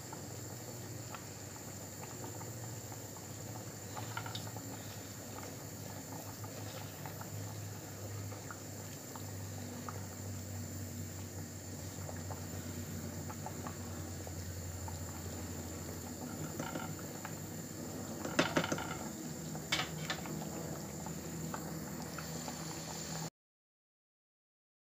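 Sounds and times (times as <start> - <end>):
sauce bubbling in a pot: 0.0 - 23.3
wooden spoon stirring: 16.2 - 17.2.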